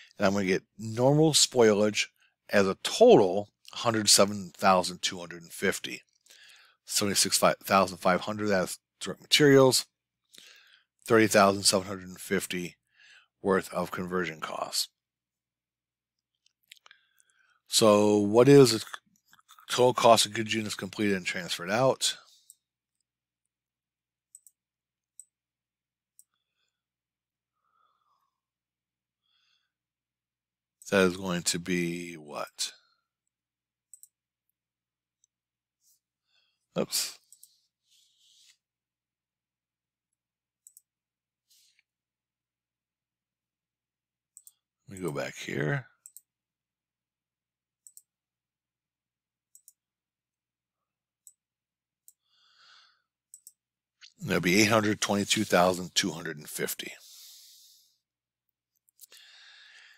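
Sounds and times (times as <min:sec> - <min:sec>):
computer mouse clicks: 0:24.3 - 0:25.3, 0:33.9 - 0:34.2, 0:40.6 - 0:40.9, 0:44.4 - 0:45.2, 0:47.8 - 0:48.1, 0:49.5 - 0:49.8, 0:53.3 - 0:53.6.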